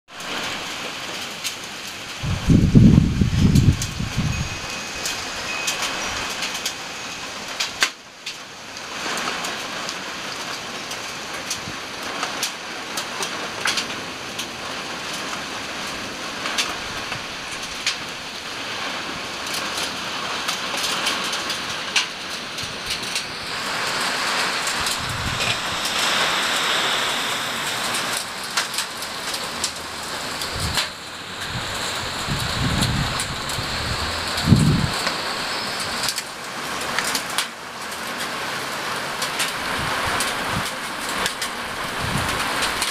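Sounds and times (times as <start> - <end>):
heavy rain in gusty wind: 0.1 - 42.9
raindrops tapping surfaces: 0.1 - 42.9
low rumble: 22.6 - 35.0.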